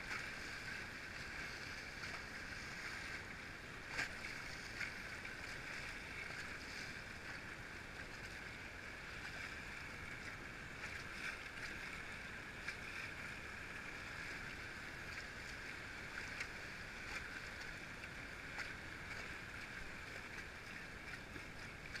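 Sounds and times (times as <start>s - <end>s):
river water rushing: 0.0s - 22.0s
faint splashes and knocks: 3.8s - 7.5s, 15.1s - 22.0s.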